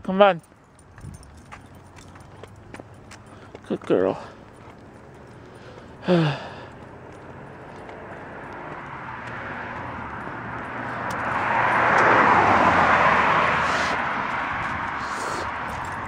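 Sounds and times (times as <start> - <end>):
car driving past: 7.1 - 16.0.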